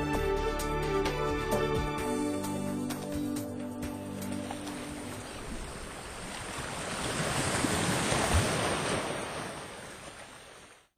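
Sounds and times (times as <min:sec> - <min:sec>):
sea wave rushing in: 0:04.2 - 0:10.9.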